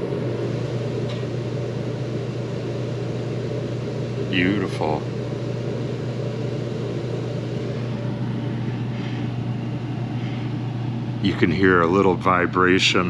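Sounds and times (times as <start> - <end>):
heater blower fan humming: 0.0 - 13.0.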